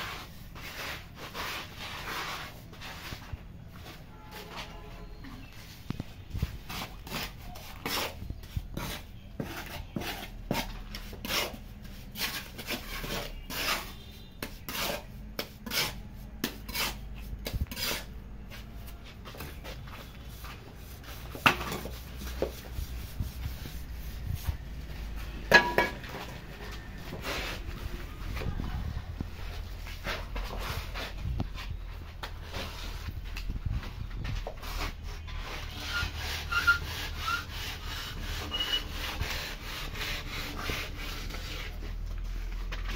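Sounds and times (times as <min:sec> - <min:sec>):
trowel scraping cement on concrete: 0:00.0 - 0:05.2, 0:06.4 - 0:27.8, 0:34.3 - 0:42.9.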